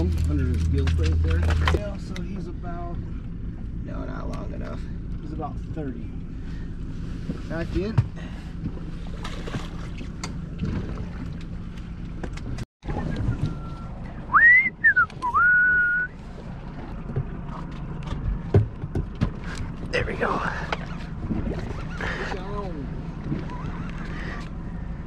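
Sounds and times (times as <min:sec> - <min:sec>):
low rumble: 0:00.0 - 0:25.0
person whistling: 0:13.3 - 0:16.2.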